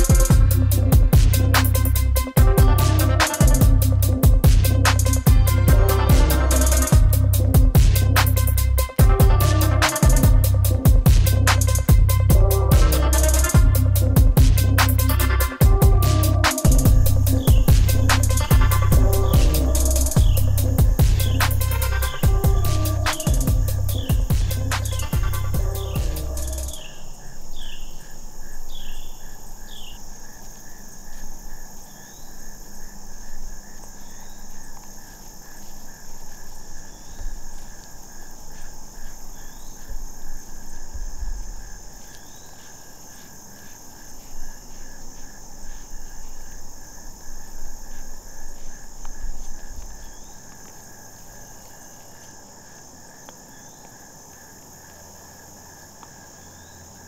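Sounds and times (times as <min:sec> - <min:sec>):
crickets and insects chirping: 0:00.0 - 0:57.0
bird chirps: 0:06.3 - 0:30.1, 0:33.6 - 0:37.7, 0:38.5 - 0:40.0, 0:42.0 - 0:43.8, 0:49.6 - 0:50.5.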